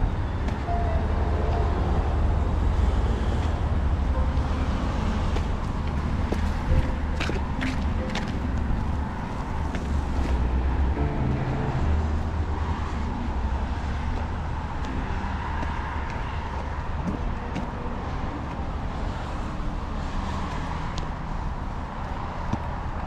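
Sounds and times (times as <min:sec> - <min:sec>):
cars passing: 0:00.0 - 0:23.0
low rumble of engines and tyres: 0:00.0 - 0:23.0.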